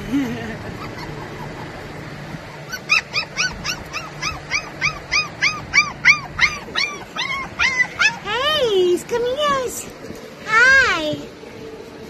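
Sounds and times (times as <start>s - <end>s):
puppy yipping: 0.8s - 1.8s, 2.5s - 8.3s.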